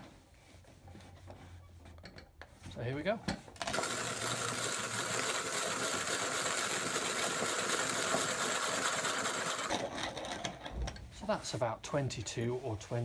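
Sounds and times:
hand coffee grinder crunching beans: 3.6 - 10.7.

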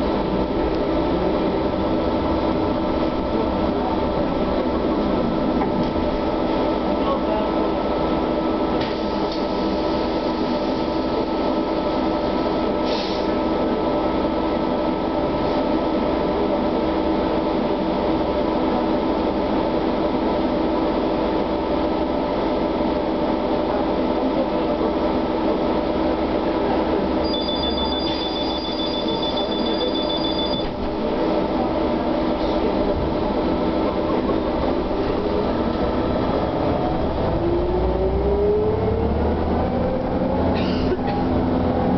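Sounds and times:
traction drive rising pitch: 32.9 - 41.9.

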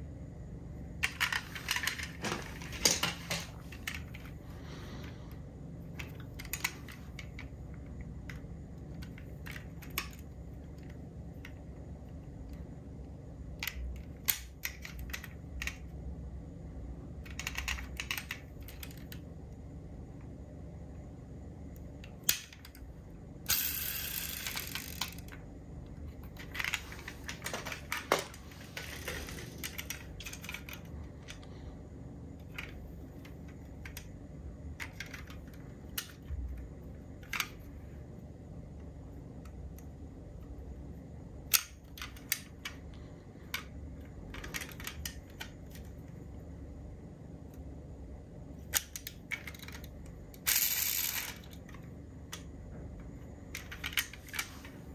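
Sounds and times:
metal toy cars clicking: 23.5 - 25.4, 44.3 - 45.9, 48.7 - 52.5, 53.5 - 54.5
toy cars scraping and rattling: 23.5 - 25.4, 26.4 - 30.9, 48.8 - 51.7.

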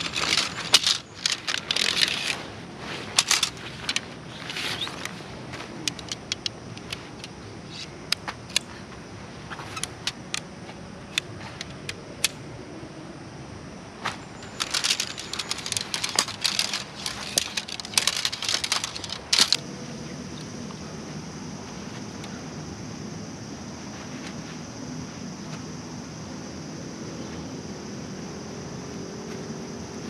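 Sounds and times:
metal poles clinking and rattling: 0.0 - 5.1, 5.7 - 8.7, 14.2 - 19.6
tent poles snapping together: 0.0 - 8.7, 9.5 - 10.5, 14.0 - 19.6.

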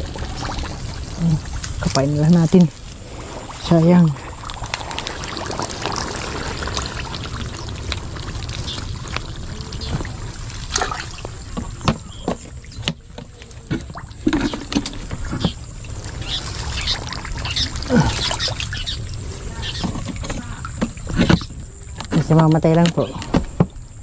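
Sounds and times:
shallow water sloshing: 0.0 - 24.0.

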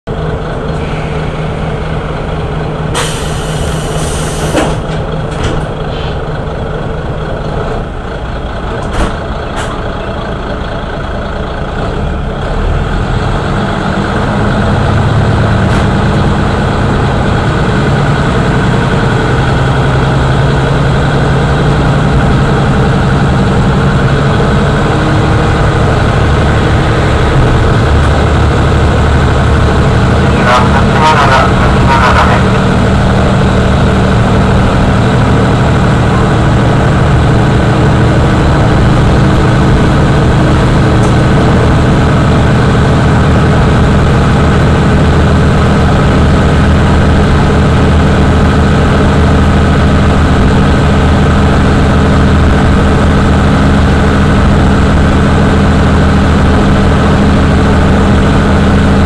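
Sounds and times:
diesel engine idling: 0.1 - 59.0
railcar engine pulling away: 0.1 - 59.0
air hissing: 3.0 - 4.7.

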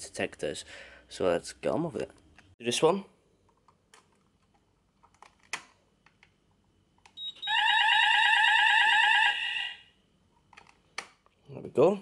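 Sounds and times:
fire alarm warbling: 7.2 - 9.8.

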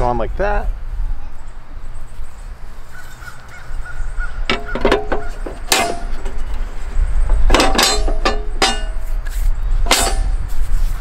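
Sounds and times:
grill grates knocking and clinking: 4.4 - 10.7.

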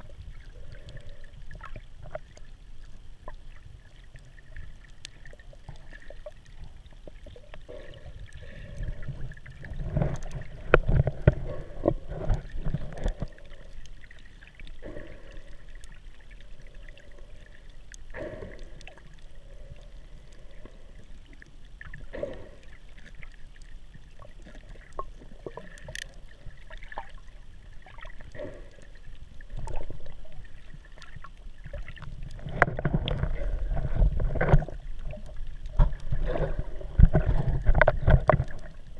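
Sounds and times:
muffled underwater sloshing: 0.0 - 38.9
faint clicks: 22.6 - 27.3.

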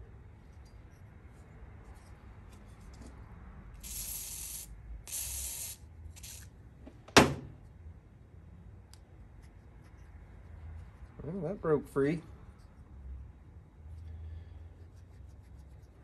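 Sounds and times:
aerosol spray hissing: 3.8 - 6.5.

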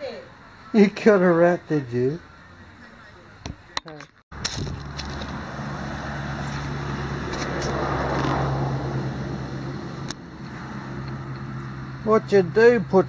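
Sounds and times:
car driving past: 4.8 - 12.5.

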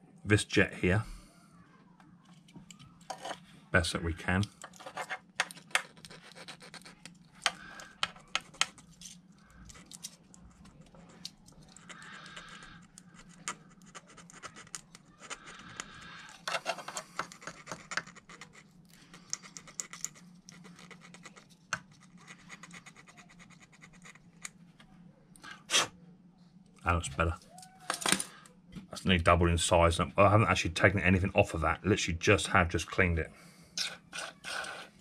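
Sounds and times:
metal parts clicking: 4.4 - 10.4.

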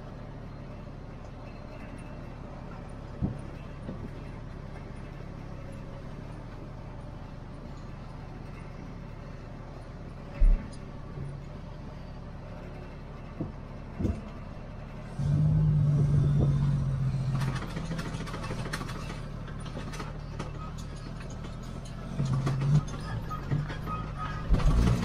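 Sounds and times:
diesel truck engine: 0.0 - 25.0
truck cab rattling and clicking: 13.2 - 14.9, 16.3 - 25.0.

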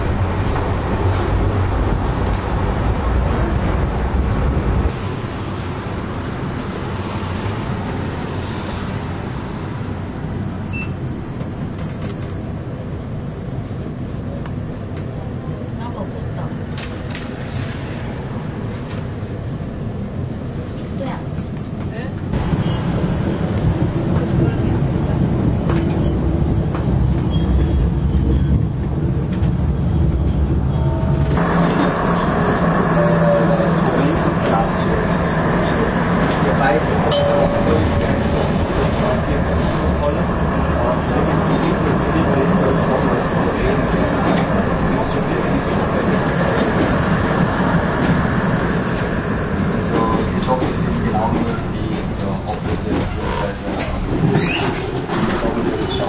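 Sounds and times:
tram wheels and motor rumbling: 0.0 - 56.0.

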